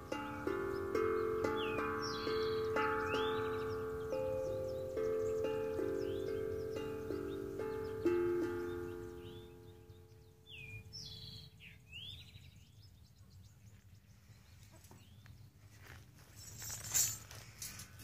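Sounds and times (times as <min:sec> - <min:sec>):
steel tank drum ringing: 0:00.0 - 0:09.8
bird chirping: 0:00.0 - 0:15.9
handling rustle: 0:15.6 - 0:18.0.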